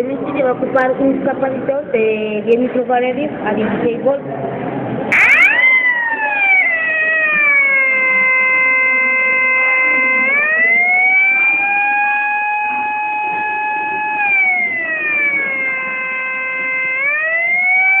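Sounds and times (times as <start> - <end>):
electronic siren through loudspeaker: 5.1 - 18.0.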